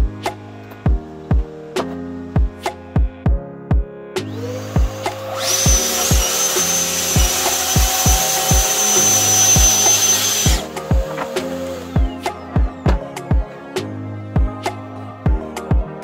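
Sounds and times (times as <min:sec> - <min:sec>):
background music with drum beat: 0:00.0 - 0:16.0
circular saw cutting plywood: 0:04.4 - 0:12.2.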